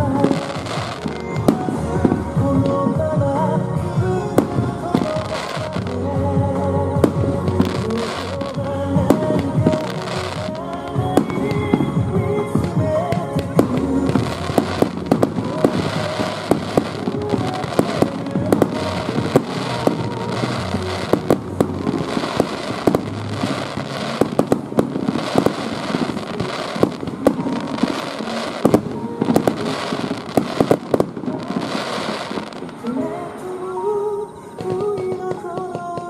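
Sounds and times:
fireworks bangs and crackles: 0:00.0 - 0:33.4, 0:34.5 - 0:36.0
music playing: 0:00.0 - 0:36.0.

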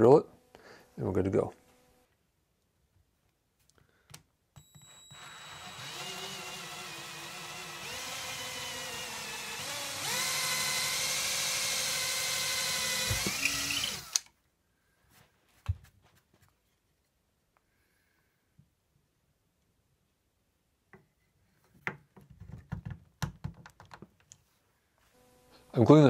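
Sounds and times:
cordless drill boring into wood: 0:04.6 - 0:14.3.

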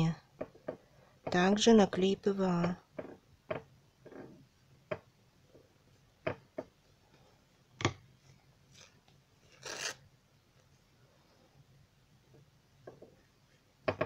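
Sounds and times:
paper napkin rustling: 0:08.6 - 0:10.6.

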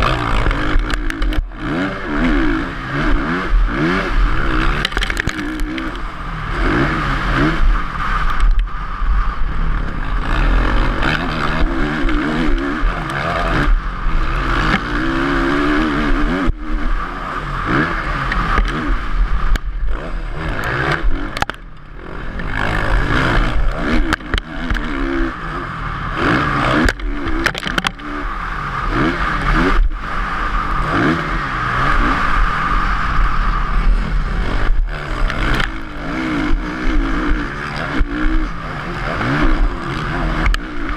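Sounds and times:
motocross bike engine revving: 0:00.0 - 0:40.9
wind: 0:00.0 - 0:40.9
chassis clatter: 0:04.4 - 0:06.7, 0:26.6 - 0:28.2.

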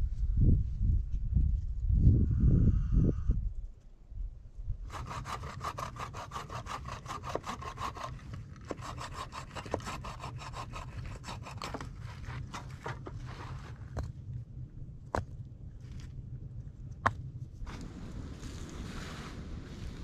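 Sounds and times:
hand saw cutting wood: 0:04.9 - 0:13.6.

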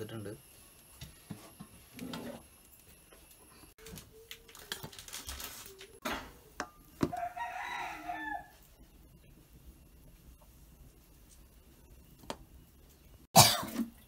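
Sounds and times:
rooster crowing: 0:07.0 - 0:08.6.

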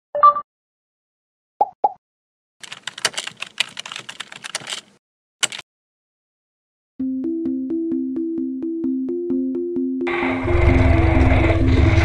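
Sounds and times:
keyboard typing: 0:02.6 - 0:05.6
quick clicks: 0:02.6 - 0:05.6.

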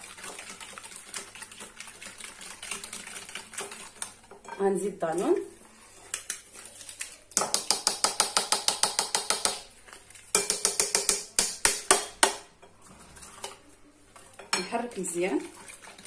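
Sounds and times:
whisk clicking against bowl: 0:00.1 - 0:04.5, 0:10.3 - 0:12.4.

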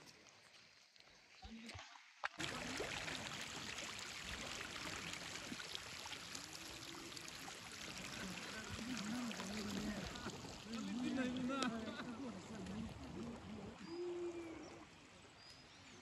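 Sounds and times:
river rippling over stones: 0:00.0 - 0:16.0.

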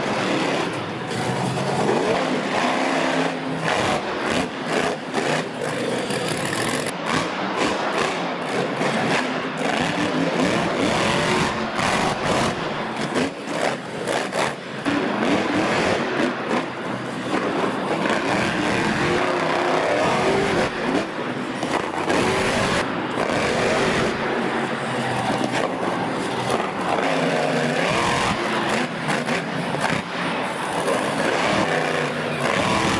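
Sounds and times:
monster truck engines revving: 0:00.0 - 0:32.9.

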